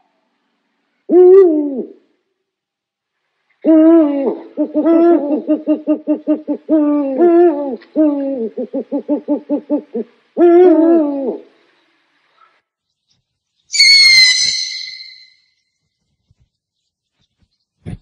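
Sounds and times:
owl hooting: 1.1 - 2.0, 3.6 - 11.7, 13.7 - 15.5.

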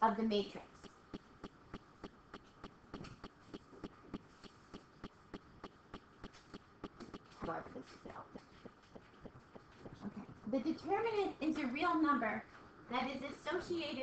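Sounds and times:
stylus tapping on screen: 0.5 - 10.5.

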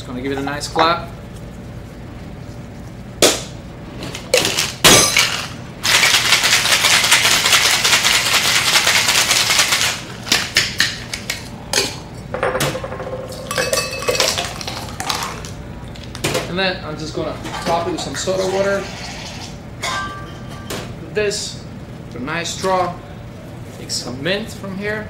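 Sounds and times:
ice rattling in cocktail shaker: 5.8 - 10.0.

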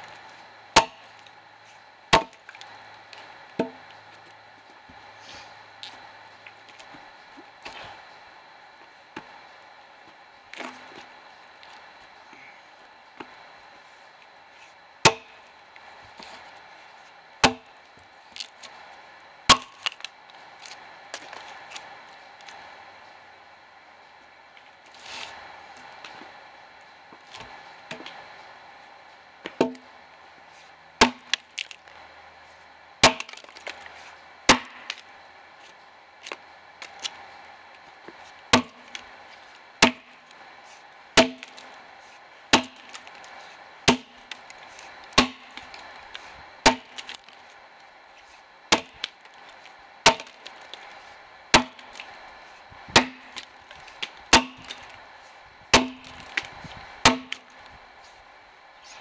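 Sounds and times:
axe chopping log: 0.7 - 1.1, 2.1 - 2.5, 3.6 - 3.8, 15.0 - 15.4, 17.4 - 17.7, 19.5 - 20.1, 29.4 - 29.9, 31.0 - 31.8, 33.0 - 33.8, 34.5 - 35.1, 38.5 - 39.0, 39.8 - 40.1, 41.2 - 41.6, 42.5 - 43.2, 43.8 - 44.4, 45.1 - 45.8, 46.6 - 47.2, 48.7 - 49.2, 50.0 - 50.8, 51.5 - 52.1, 52.9 - 54.9, 55.7 - 57.6.

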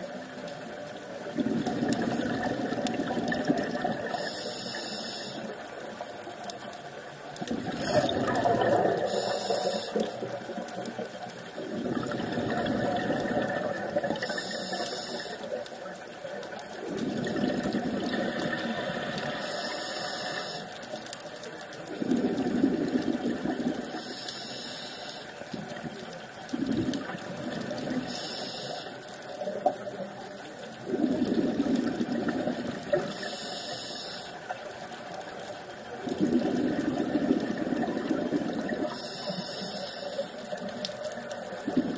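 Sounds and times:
exhaled bubbles rushing: 1.2 - 4.3, 7.4 - 14.6, 15.6 - 19.6, 21.8 - 24.1, 25.4 - 28.1, 29.6 - 33.1, 35.6 - 39.1, 40.4 - 41.9
hissing regulator inhalations: 4.1 - 5.7, 9.0 - 10.2, 14.2 - 15.6, 18.7 - 21.0, 23.9 - 25.4, 28.0 - 29.3, 33.0 - 34.4, 38.8 - 40.7.

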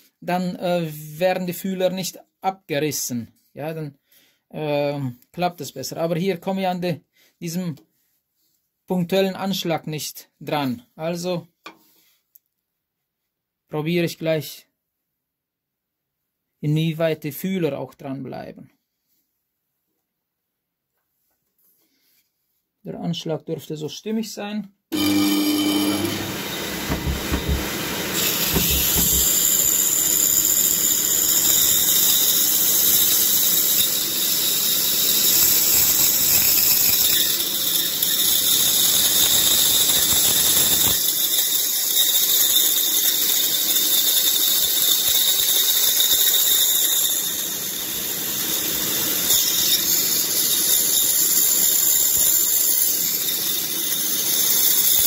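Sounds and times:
band saw cutting wood: 25.0 - 55.0.

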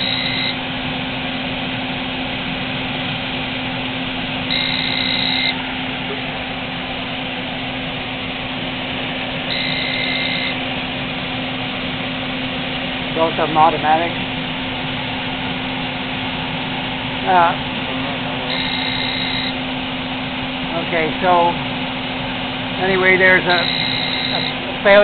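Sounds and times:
alarm beeps: 0.0 - 0.6, 4.5 - 5.6, 9.5 - 10.6, 18.5 - 19.6, 23.5 - 24.6
furnace blower fan running: 0.0 - 25.0.

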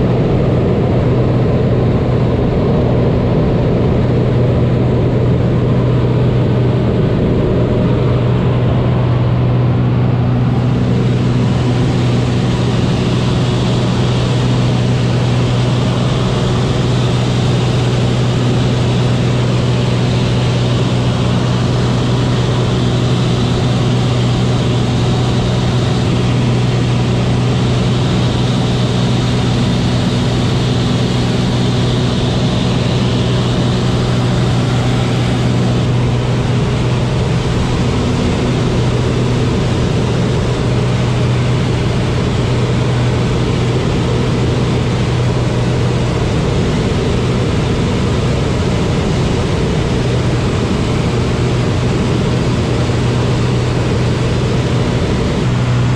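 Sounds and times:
propeller aircraft engine drone: 0.0 - 55.9
rushing air: 5.3 - 55.9.

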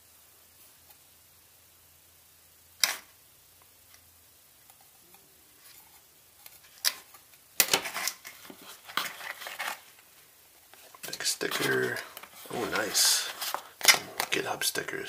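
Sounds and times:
handling rustle: 5.6 - 14.5.

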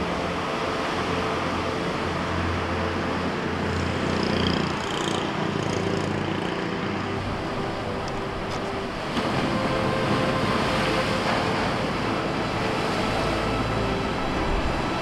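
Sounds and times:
road traffic noise: 0.0 - 15.0
vehicle engine humming: 0.1 - 15.0.

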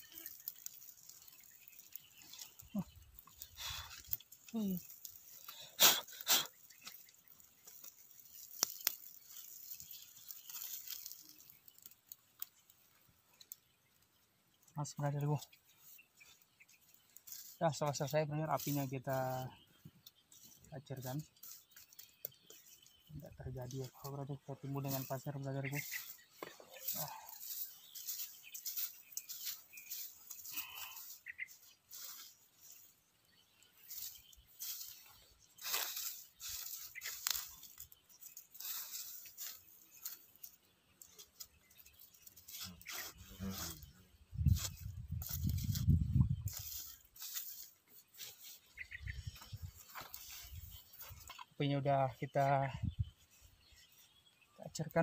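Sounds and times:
sticks scraping sand and ash: 0.0 - 12.6, 33.8 - 51.3
rustling: 0.0 - 13.5, 33.8 - 51.5
twig fire crackling: 0.0 - 51.4
bird chirps: 0.0 - 55.0.

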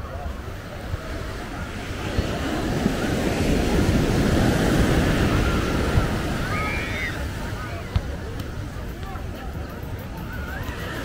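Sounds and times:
ocean wave breaking: 1.0 - 8.2.

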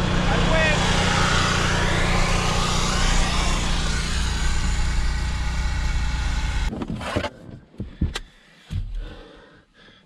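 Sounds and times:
engine idling: 0.0 - 6.7.

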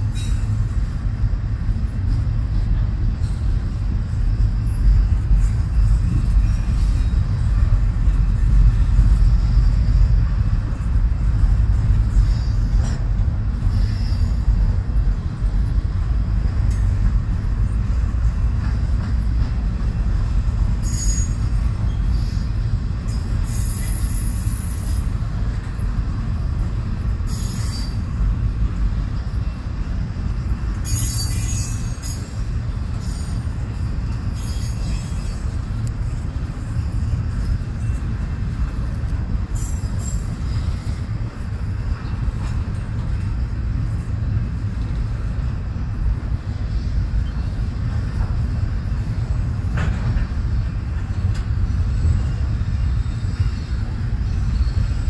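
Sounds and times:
train wheels rumbling on rail: 0.0 - 55.0
high-pitched wheel squeals: 13.6 - 14.6, 20.8 - 25.0, 27.3 - 28.1, 30.8 - 35.6, 50.6 - 55.0.

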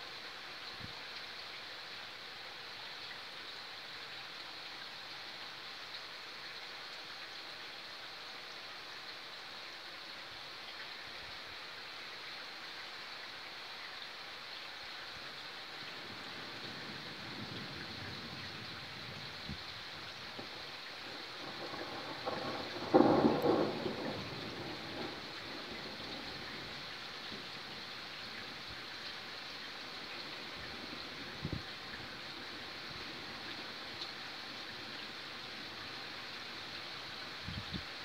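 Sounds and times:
rain hissing: 0.0 - 38.0
thunder rumbling: 21.1 - 27.4
thunder clap: 21.5 - 25.2.

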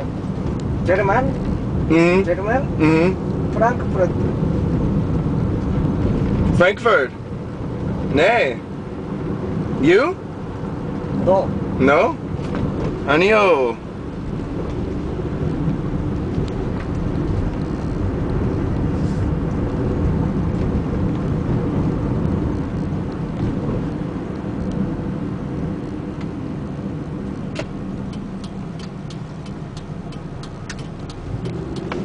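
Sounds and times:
car engine and tyre rumble: 0.0 - 32.0
regular light ticks: 27.5 - 32.0.

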